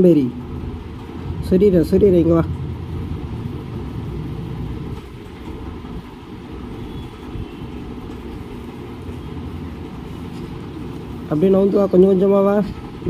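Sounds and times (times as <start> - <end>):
low rumble: 0.4 - 6.1.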